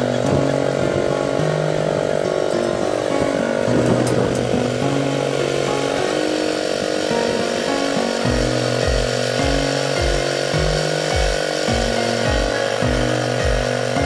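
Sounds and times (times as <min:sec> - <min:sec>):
buzzy synth bass line: 0:00.0 - 0:14.0
kick drum: 0:08.3 - 0:14.0.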